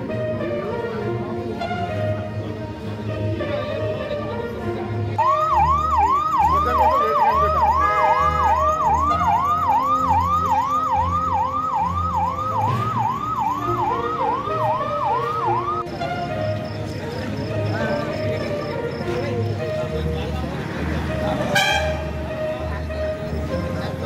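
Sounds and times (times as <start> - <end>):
siren yelping: 5.2 - 15.9
background music with low beat: 5.2 - 24.0.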